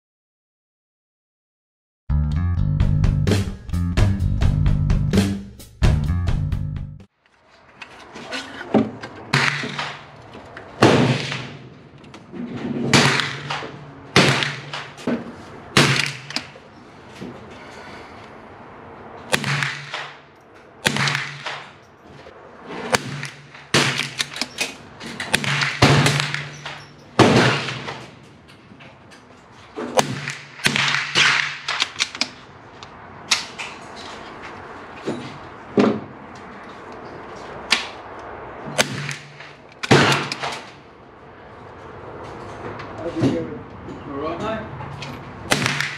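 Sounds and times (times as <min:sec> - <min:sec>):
gunshots: 0:09.3 - 0:10.1, 0:10.8 - 0:11.8, 0:12.9 - 0:15.0, 0:15.7 - 0:16.6, 0:19.3 - 0:20.2, 0:20.8 - 0:21.8, 0:22.9 - 0:24.4, 0:25.2 - 0:28.2, 0:29.9 - 0:32.2, 0:38.8 - 0:40.7, 0:45.5 - 0:45.9.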